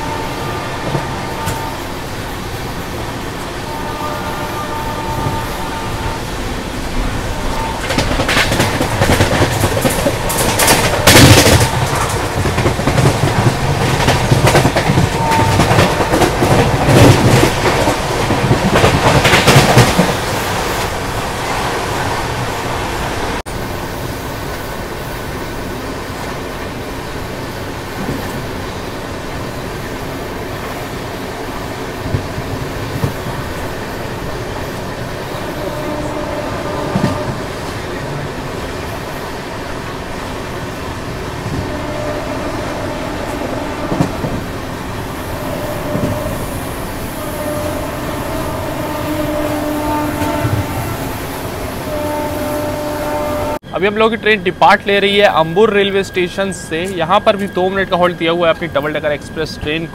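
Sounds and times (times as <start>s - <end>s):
train rumble: 0.0s - 59.9s
train wheels clacking on rails: 6.9s - 21.7s, 29.8s - 52.1s.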